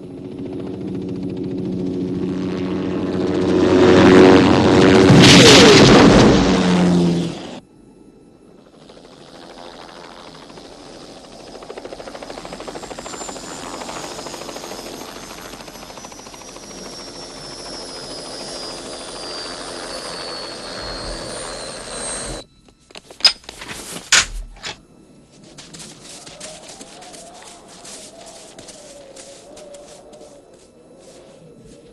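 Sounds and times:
high whine: 2.0 - 31.9
helicopter rotor chop: 8.7 - 22.4.

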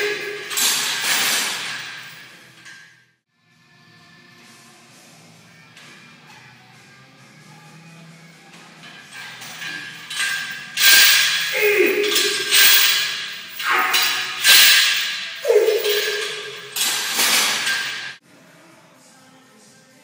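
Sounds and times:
steel chains rattling and clanking: 0.0 - 2.9, 8.5 - 18.2.

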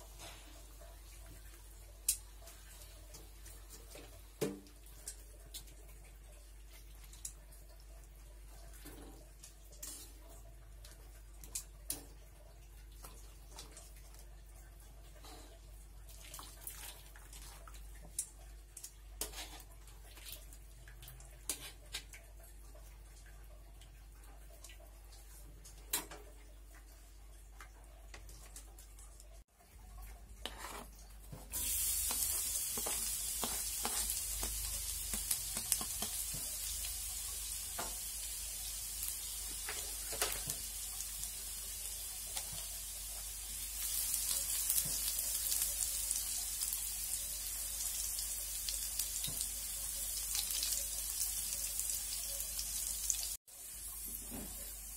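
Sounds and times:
spatula stirring in pan: 13.0 - 23.3, 30.1 - 53.2
hot oil sizzling: 31.5 - 54.9.

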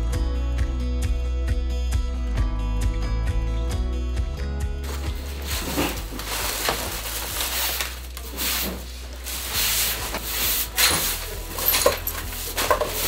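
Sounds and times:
hand broom sweeping litter: 4.9 - 13.0.

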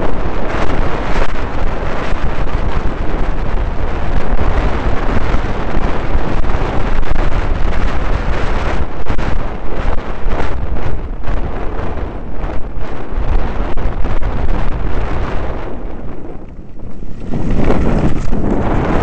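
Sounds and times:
wind buffeting microphone: 0.0 - 19.0
bike rattling and knocking: 16.2 - 19.0.

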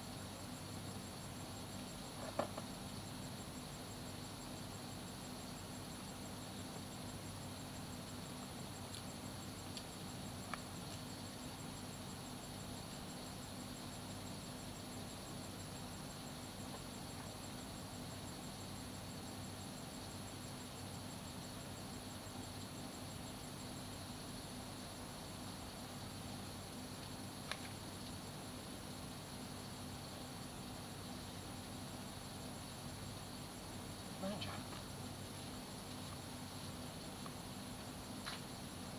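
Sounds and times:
insect pulsing trill: 0.0 - 38.9
insects calling: 0.0 - 38.9
low steady hum: 0.0 - 38.9
faint ticks: 8.8 - 11.2, 26.9 - 28.2, 37.1 - 38.6.

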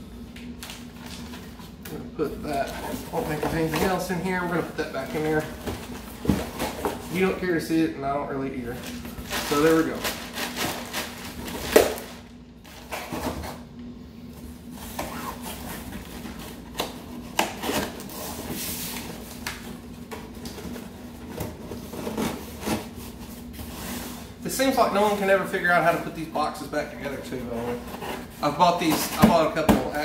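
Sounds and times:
plastic crinkling: 8.7 - 13.0.

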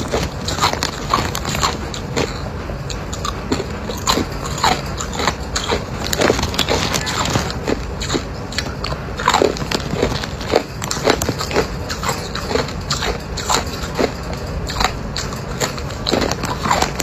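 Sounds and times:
ice cubes crunched between teeth: 4.0 - 17.0.

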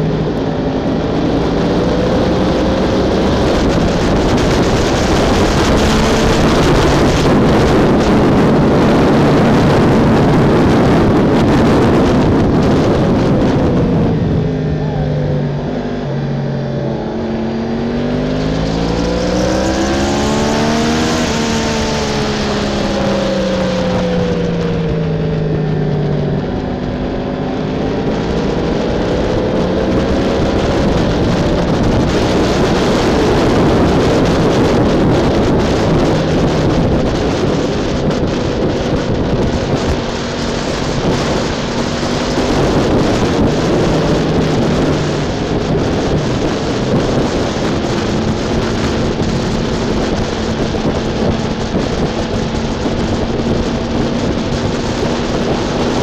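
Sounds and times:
motorcycle engine revving: 0.0 - 56.0
rushing wind and road noise: 0.0 - 56.0.

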